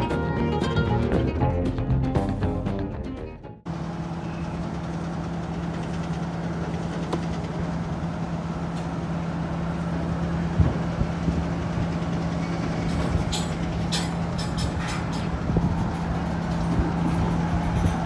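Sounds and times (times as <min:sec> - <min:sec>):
low diesel engine hum: 0:03.6 - 0:18.0
freight train rumble: 0:03.7 - 0:18.0
train clanks: 0:03.7 - 0:18.0.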